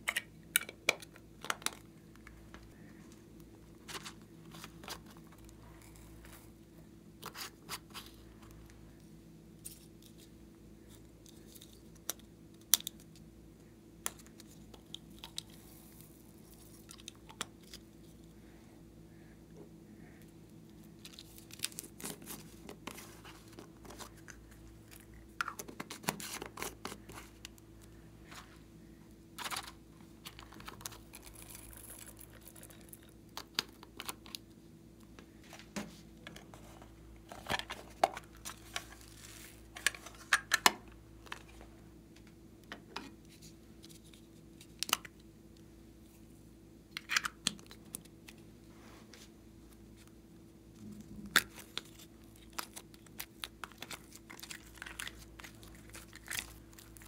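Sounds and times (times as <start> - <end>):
crinkly rustles: 29.4 - 34.4, 35.3 - 40.3, 47.9 - 57.0.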